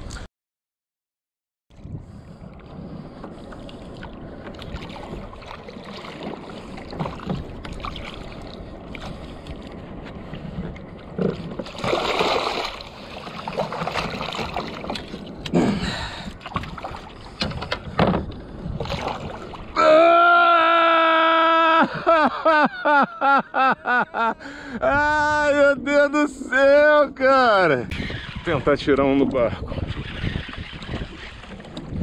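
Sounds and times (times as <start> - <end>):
water sloshing and splashing: 2.1 - 19.8, 28.1 - 32.0.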